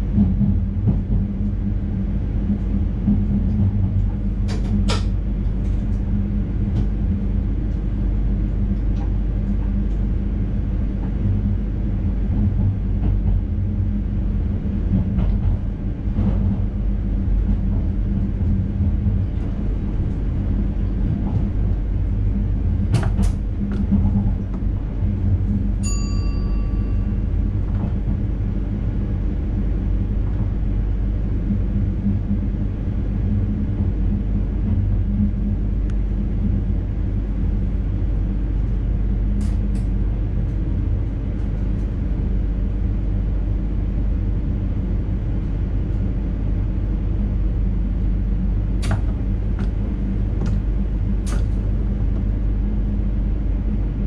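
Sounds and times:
train low rumble: 0.0 - 54.0
short chime: 25.8 - 27.2.

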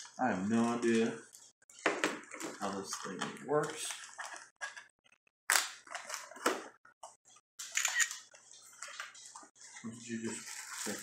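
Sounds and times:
plastic packaging rustling: 0.0 - 4.8, 8.2 - 11.0.

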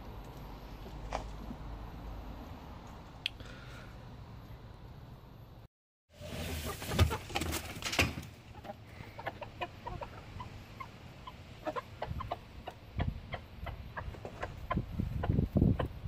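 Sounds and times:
knocks and rustling: 6.3 - 8.4
hens clucking: 8.4 - 16.0.

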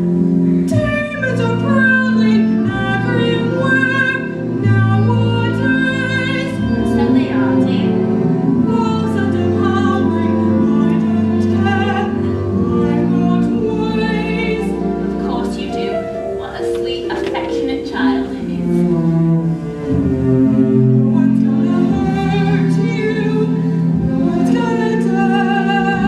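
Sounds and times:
instrumental accompaniment: 0.0 - 26.0.

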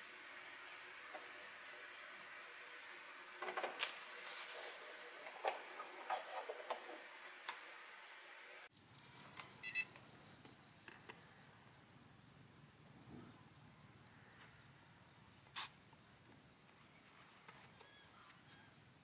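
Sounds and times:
short electronic beeps: 9.5 - 11.6.

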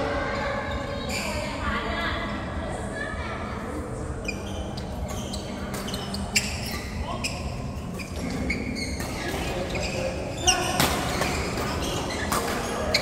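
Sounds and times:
sneakers squeaking on court: 4.2 - 13.0.

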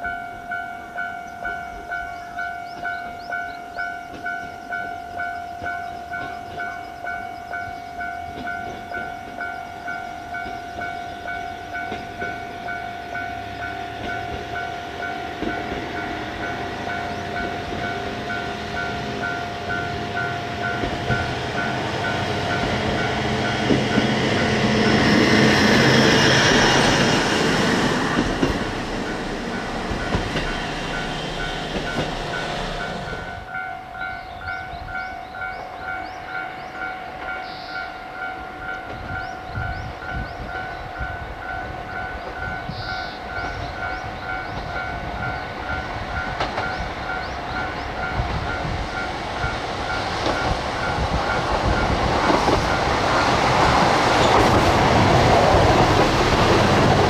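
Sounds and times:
diesel train passing: 0.0 - 57.0
train wheels clattering: 7.4 - 34.7, 41.5 - 57.0.

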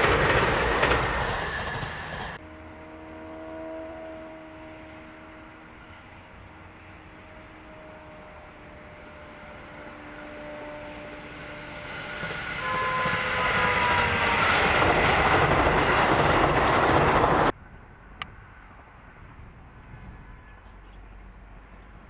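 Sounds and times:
electric train passing: 0.0 - 22.0
quiet outdoor background: 16.6 - 22.0.

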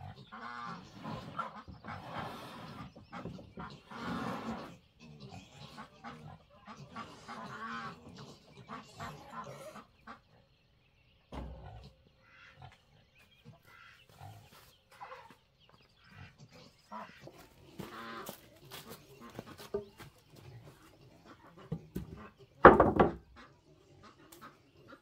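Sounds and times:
farm animals calling: 0.0 - 25.0
faint knocks: 21.7 - 23.3.

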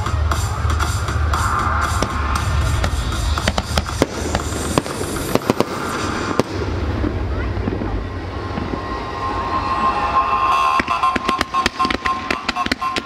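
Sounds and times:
loud show music with bass: 0.0 - 7.8
fireworks cracking and banging: 0.0 - 13.0.

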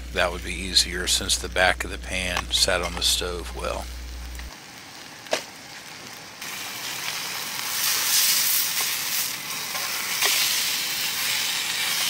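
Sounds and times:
steak sizzling in a frying pan: 4.3 - 12.0.

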